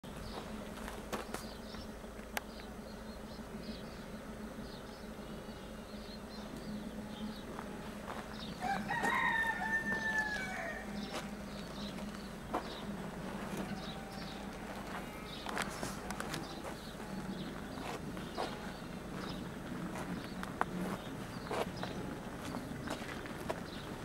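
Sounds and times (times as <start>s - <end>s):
rooster crowing: 8.4s - 11.2s, 13.4s - 15.6s.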